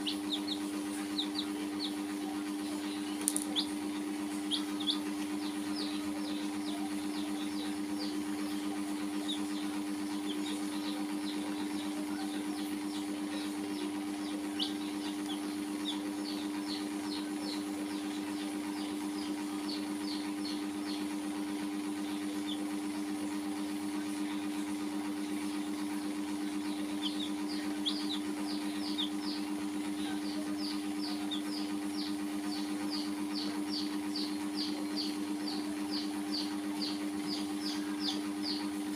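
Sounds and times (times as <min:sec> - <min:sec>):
baby chicks peeping: 0:00.0 - 0:38.9
steady hum: 0:00.0 - 0:38.9.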